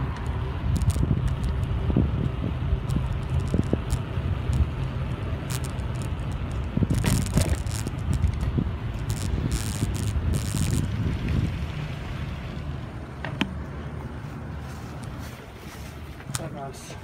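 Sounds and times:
bike rattling and clicking: 0.0 - 11.8
wind rumble on microphone: 0.0 - 13.5.

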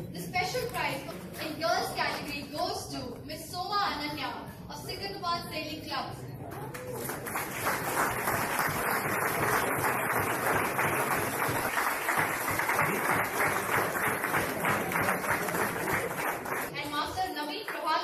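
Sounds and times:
audience applauding: 6.7 - 16.8.

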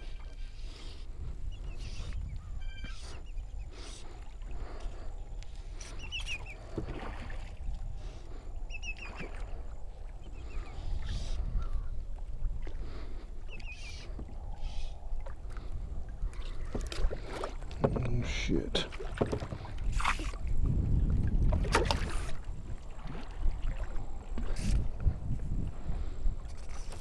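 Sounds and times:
wind rumbling on microphone: 0.0 - 27.0
soft knocks or splashes: 18.9 - 20.2.

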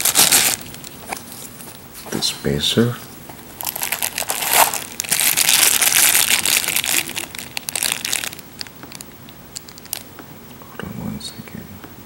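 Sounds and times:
plastic bags crinkling: 0.0 - 1.2, 3.4 - 10.1.

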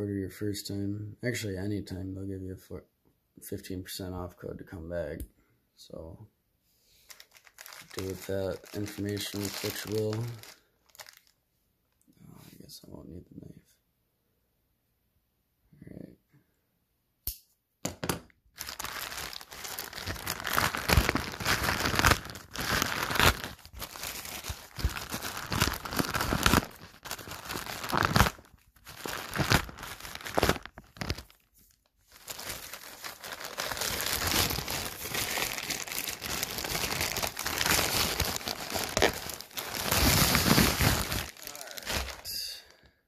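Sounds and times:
plastic bags crinkling: 7.1 - 11.4, 18.6 - 42.7.

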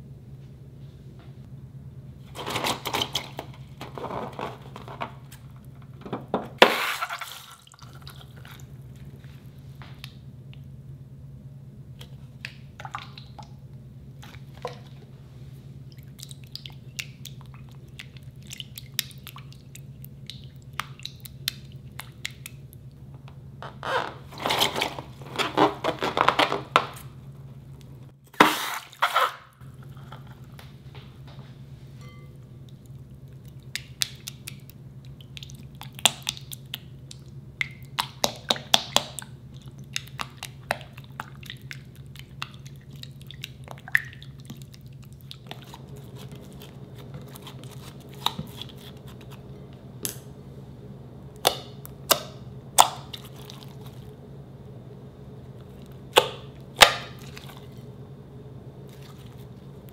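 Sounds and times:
slime squelching: 15.8 - 22.9, 32.6 - 50.4, 51.3 - 54.3, 55.4 - 58.0, 58.8 - 59.9
spatula stirring slime: 15.9 - 22.7, 33.3 - 49.8, 52.8 - 54.2, 57.0 - 57.9
low hum: 29.6 - 35.9, 39.2 - 59.9.

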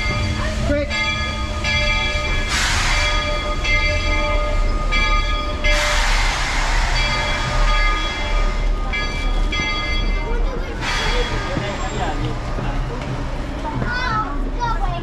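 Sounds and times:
steady tones: 0.0 - 14.5
steam hissing: 2.4 - 3.8, 5.6 - 9.0.

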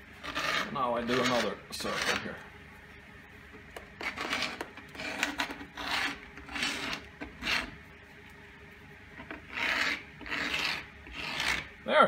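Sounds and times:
metal point scratching fibreboard: 0.2 - 2.4, 4.0 - 7.8, 9.2 - 11.7.

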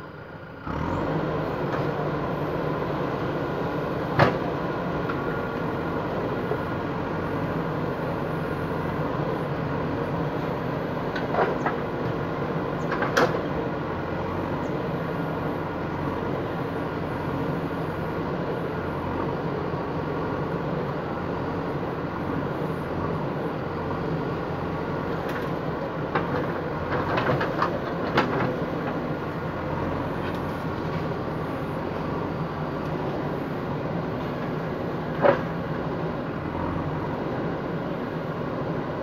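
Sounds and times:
backhoe diesel engine running: 0.0 - 39.0.

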